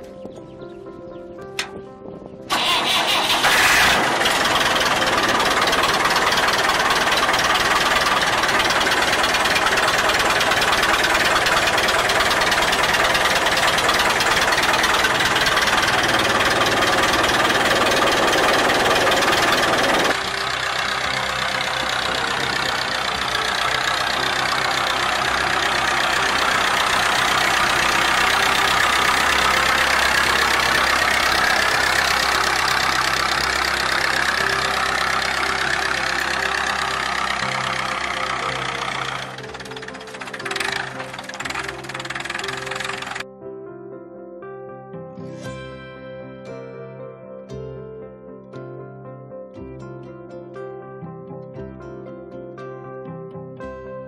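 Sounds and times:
tractor diesel engine running: 0:02.5 - 0:43.2.

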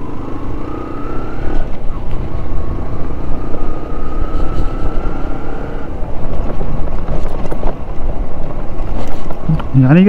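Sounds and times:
thin whine: 0:00.0 - 0:06.5
motorcycle engine running: 0:00.0 - 0:10.0
road and wind rumble: 0:00.0 - 0:10.0.

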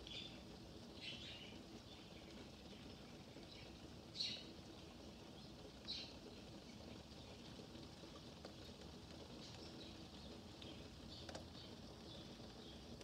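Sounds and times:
faint rain falling: 0:00.0 - 0:13.0.

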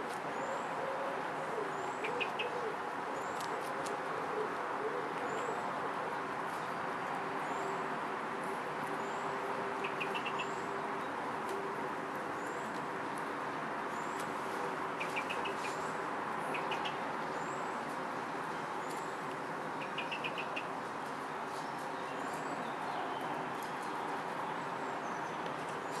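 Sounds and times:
small birds chirping: 0:09.1 - 0:11.1, 0:15.0 - 0:17.8, 0:18.8 - 0:26.0.

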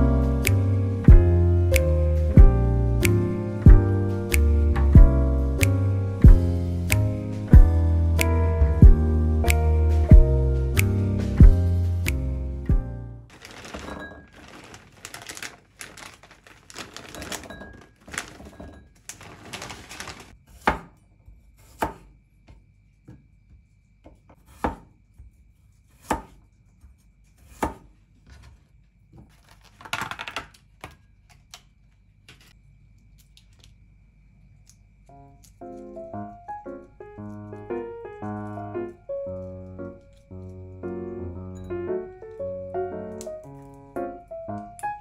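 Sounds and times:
plastic bag rustling: 0:13.3 - 0:20.4.

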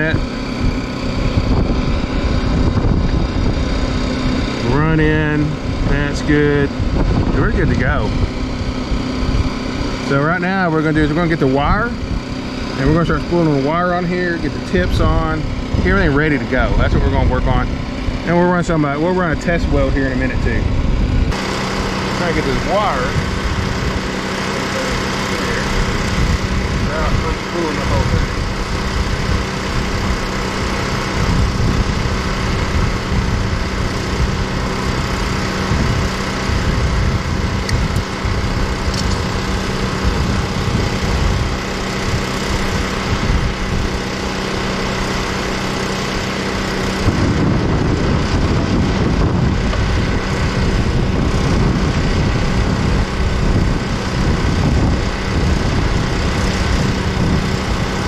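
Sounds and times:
low rumble: 0:00.0 - 0:21.4
engine humming steadily: 0:00.0 - 0:58.0.

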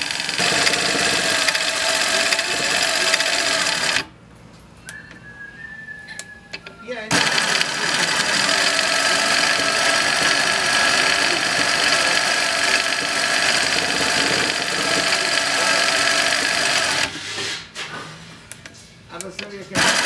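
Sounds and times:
sewing machine running: 0:00.0 - 0:04.1, 0:07.1 - 0:17.1, 0:19.7 - 0:20.0.

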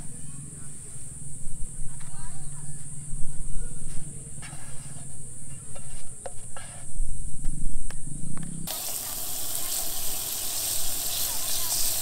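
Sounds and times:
insects chirring: 0:07.1 - 0:12.0
food sizzling in a pan: 0:08.7 - 0:12.0.

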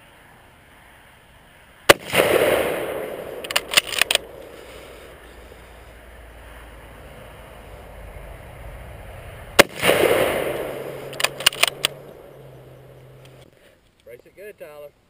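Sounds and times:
rifle shot: 0:01.9 - 0:05.2, 0:09.6 - 0:13.4
rifle bolt clacking: 0:03.3 - 0:04.5, 0:10.4 - 0:12.2.

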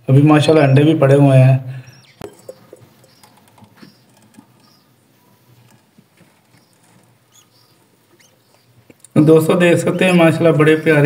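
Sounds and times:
faint high chirps: 0:01.8 - 0:05.8
birds scratching and rustling: 0:01.9 - 0:11.0.

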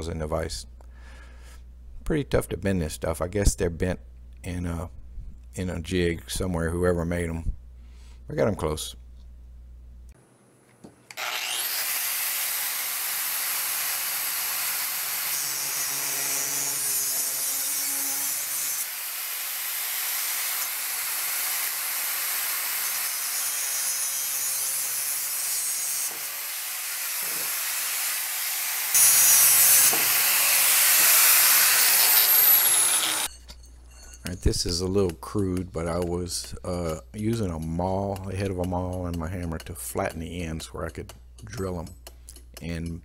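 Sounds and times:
angle grinder grinding metal: 0:11.1 - 0:42.9.

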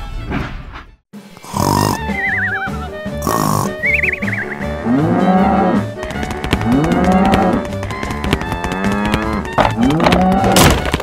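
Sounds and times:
background music: 0:00.0 - 0:11.0
cow mooing: 0:03.2 - 0:10.6.

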